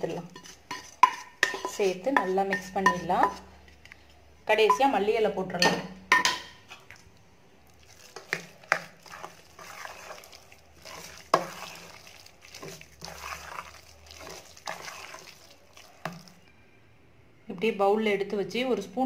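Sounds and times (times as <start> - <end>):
spoon stirring and scraping pot: 0.0 - 7.1, 7.7 - 16.5.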